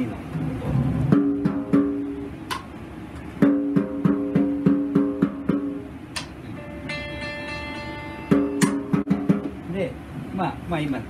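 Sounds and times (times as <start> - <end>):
snare drum head tapped by hand: 1.1 - 2.7, 3.4 - 6.4, 8.3 - 9.6.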